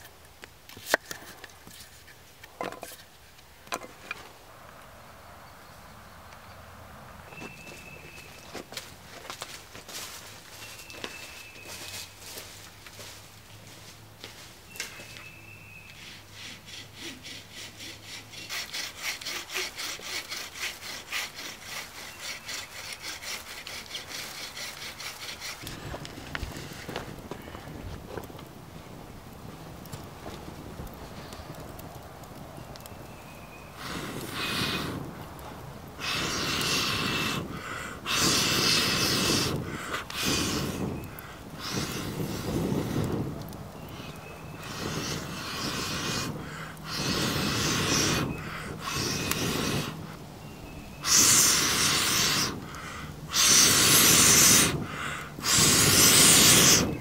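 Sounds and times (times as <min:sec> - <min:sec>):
person blowing on embers: 0:13.8 - 0:32.0, 0:32.8 - 0:57.0
quick in-breaths: 0:36.0 - 0:43.1, 0:44.6 - 0:50.0, 0:51.0 - 0:56.9.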